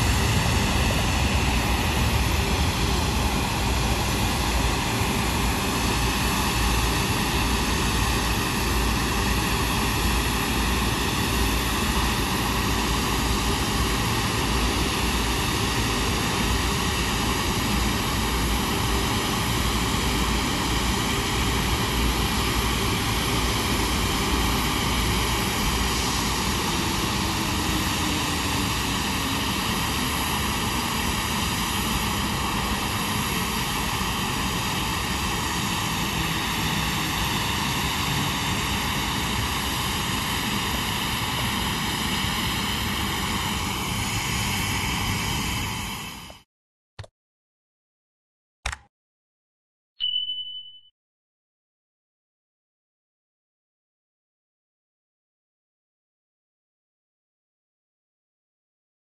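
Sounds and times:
jet engine running with whine: 0:00.0 - 0:46.5.

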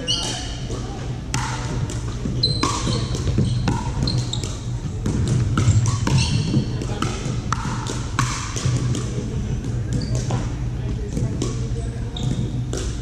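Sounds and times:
shoes squeaking on hardwood court: 0:00.0 - 0:00.7, 0:02.0 - 0:07.0, 0:09.8 - 0:10.6, 0:12.0 - 0:13.0
paddles striking plastic ball: 0:00.7 - 0:10.4.

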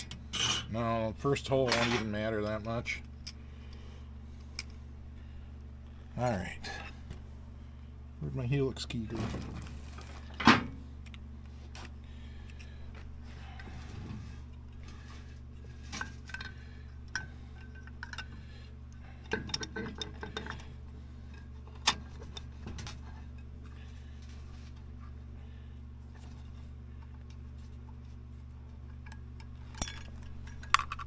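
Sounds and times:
steady low hum: 0:00.0 - 0:31.0
metal parts clicking and clinking: 0:19.2 - 0:20.6, 0:28.9 - 0:31.0.

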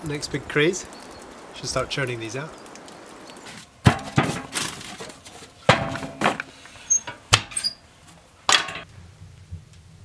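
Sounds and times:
metal stove knocks and clanks: 0:03.9 - 0:04.6, 0:05.7 - 0:06.5, 0:08.5 - 0:08.8.

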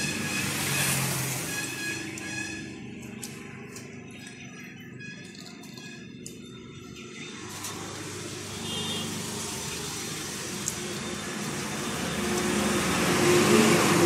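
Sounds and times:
vehicle engine running: 0:07.2 - 0:14.0.

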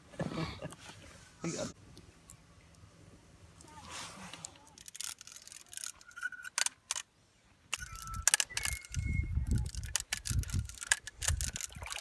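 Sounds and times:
fishing reel clicking: 0:04.8 - 0:07.0, 0:07.7 - 0:12.0.

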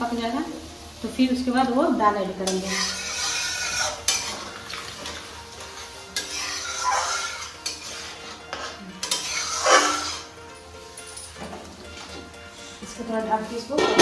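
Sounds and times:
food sizzling: 0:00.0 - 0:14.0
metal spatula scraping pan: 0:02.4 - 0:10.4, 0:13.7 - 0:14.0.

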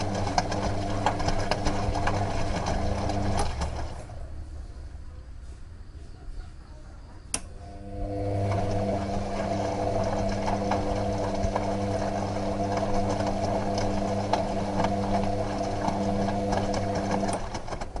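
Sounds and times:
washing machine motor humming: 0:00.0 - 0:05.1, 0:07.3 - 0:18.0.

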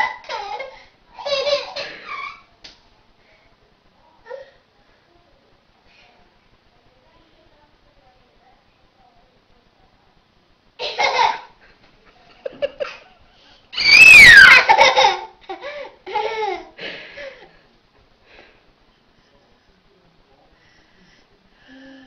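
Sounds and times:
toddler high-pitched squeal: 0:13.8 - 0:14.7.

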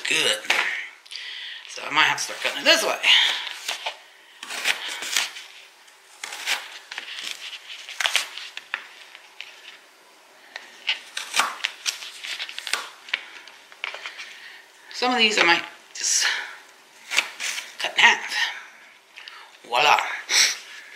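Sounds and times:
knife slicing sweet potato: 0:02.2 - 0:05.5, 0:06.1 - 0:08.4, 0:11.0 - 0:11.7.

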